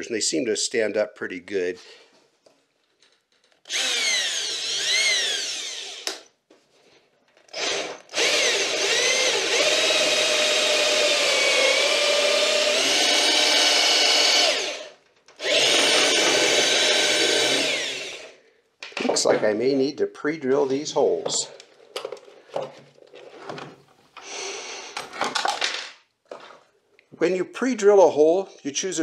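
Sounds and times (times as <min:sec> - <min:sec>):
cordless drill driving screw into metal: 0:03.6 - 0:06.3.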